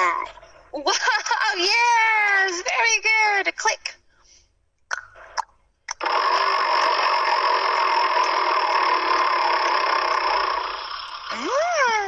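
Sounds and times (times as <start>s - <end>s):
spinning wheel whirring: 5.9s - 12.0s.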